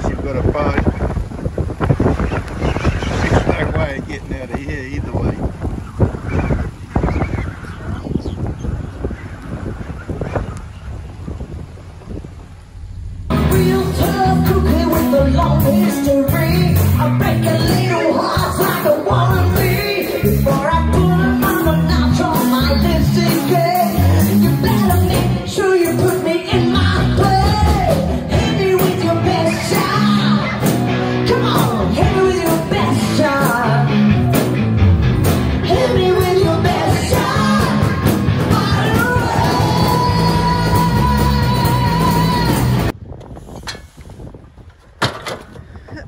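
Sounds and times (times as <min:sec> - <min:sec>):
live band playing a song: 0:13.3 - 0:42.9.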